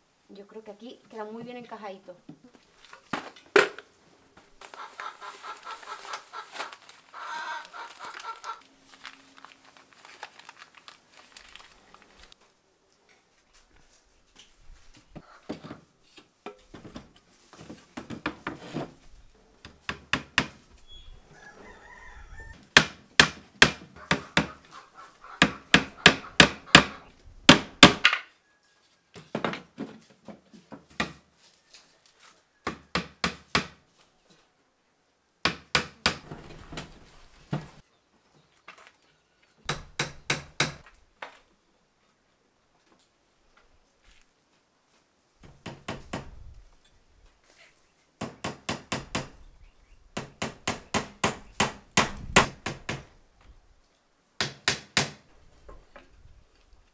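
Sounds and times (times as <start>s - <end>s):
hammer striking wood: 22.8s - 24.6s, 25.4s - 28.2s, 32.6s - 33.8s, 35.4s - 36.2s, 39.7s - 40.9s, 48.2s - 49.3s, 50.2s - 53.1s, 54.4s - 55.2s.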